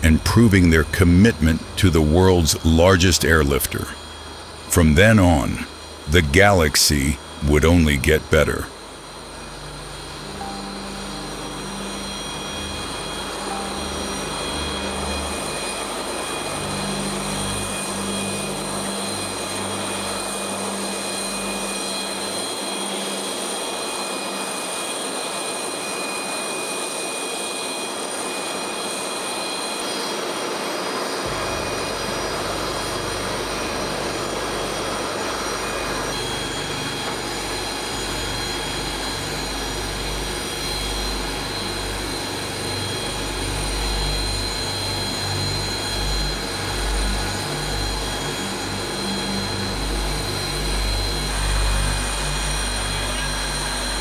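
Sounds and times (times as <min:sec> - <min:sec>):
jet turbines whining: 0:00.0 - 0:54.0.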